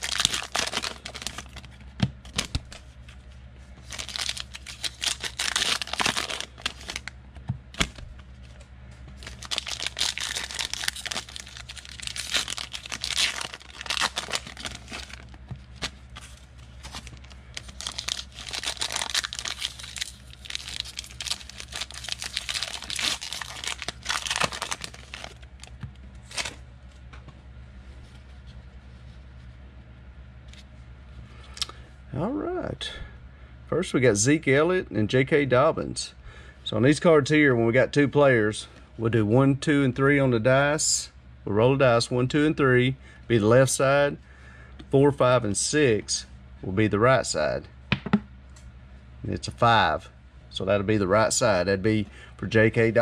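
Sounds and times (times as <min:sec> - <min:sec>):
foil wrappers tearing and crinkling: 0:00.0 - 0:02.8, 0:03.8 - 0:07.1, 0:09.2 - 0:26.6
steady low hum: 0:00.0 - 0:53.0.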